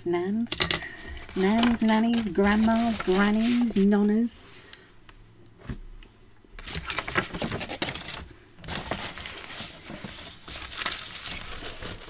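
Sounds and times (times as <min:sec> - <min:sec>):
paper crinkling and rustling: 0:01.0 - 0:04.3, 0:06.6 - 0:12.0.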